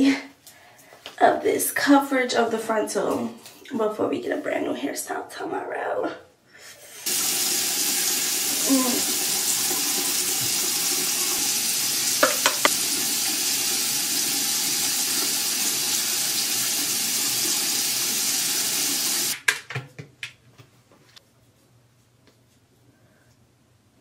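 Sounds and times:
tap water running: 7.0 - 19.4
sharp knocks: 12.2 - 12.8.

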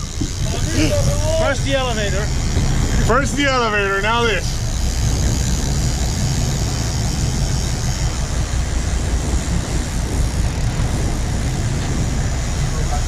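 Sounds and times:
boat engine rumble: 0.0 - 13.0
hiss of wind and water: 4.4 - 13.0.

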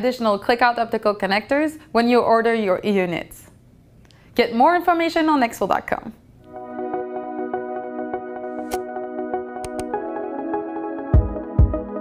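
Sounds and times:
electronic ambient music: 6.5 - 12.0.

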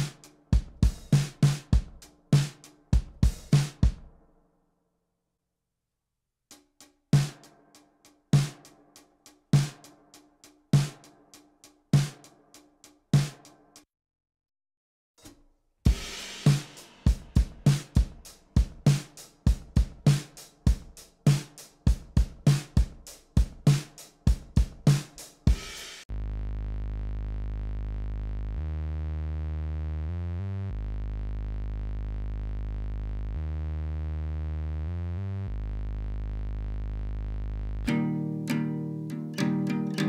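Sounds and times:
drum kit beat: 0.0 - 4.2, 6.5 - 13.8, 15.2 - 26.1, 37.9 - 40.0
synth bass low notes: 26.1 - 37.9
guitar: 37.9 - 40.0.

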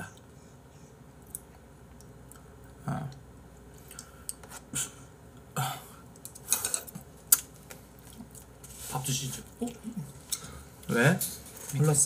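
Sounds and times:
person clearing throat: 5.6 - 6.0.

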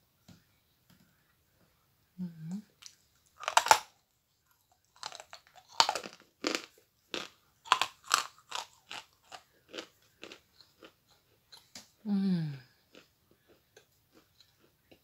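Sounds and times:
chalk crunching when bitten: 3.4 - 3.9.

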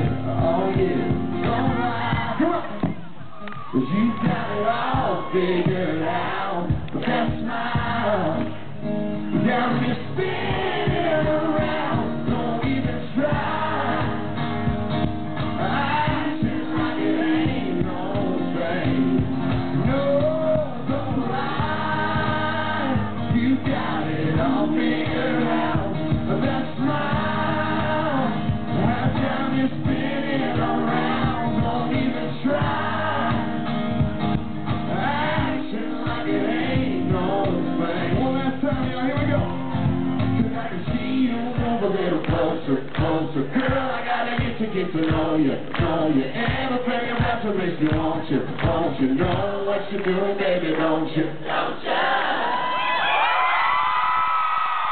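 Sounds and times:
man singing: 0.0 - 2.8, 3.7 - 14.2, 15.6 - 33.6, 34.9 - 51.4
strummed acoustic guitars: 0.0 - 3.0, 4.3 - 50.3
live band playing: 6.7 - 42.1.

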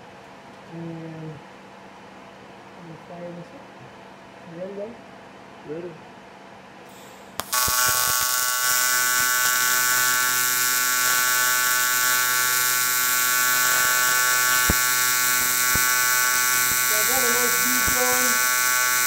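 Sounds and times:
welding arc striking click: 6.9 - 19.0
welding arc buzzing: 7.0 - 19.0.

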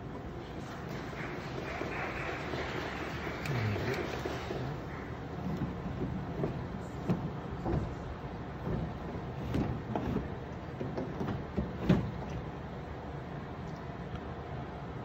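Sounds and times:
soft knocks and thumps: 5.4 - 12.4.

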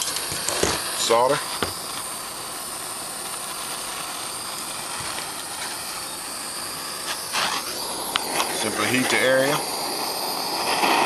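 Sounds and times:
propane torch flame hissing: 0.0 - 11.0.

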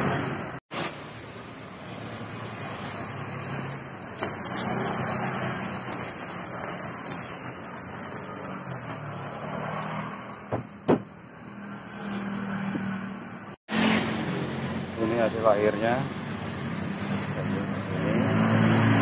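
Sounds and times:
arc welding sizzling hiss: 4.2 - 9.8.

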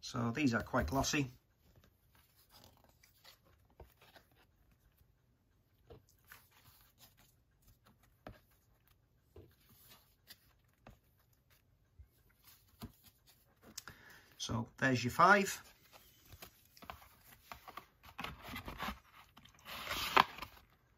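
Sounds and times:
photo cards clicking and rustling: 15.7 - 20.9.

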